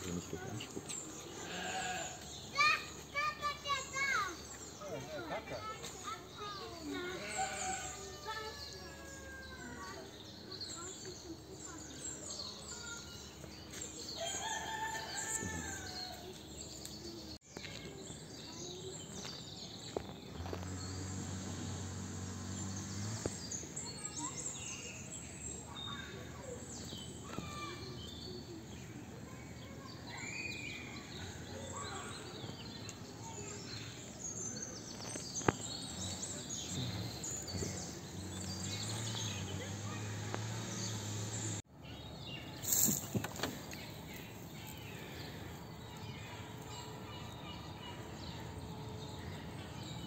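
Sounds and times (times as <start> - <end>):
birds chirping: 0.0 - 50.0.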